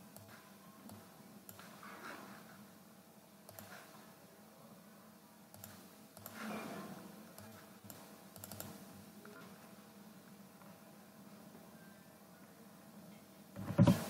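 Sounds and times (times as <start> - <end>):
faint steady hum: 0.0 - 14.0
faint computer mouse clicks: 3.5 - 3.9, 5.5 - 6.4, 7.4 - 8.8.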